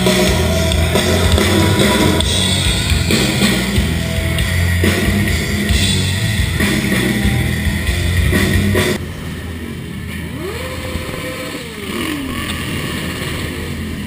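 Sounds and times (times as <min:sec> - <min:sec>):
rock music with drums: 0:00.0 - 0:09.0
motorcycle engine revving: 0:00.0 - 0:14.0.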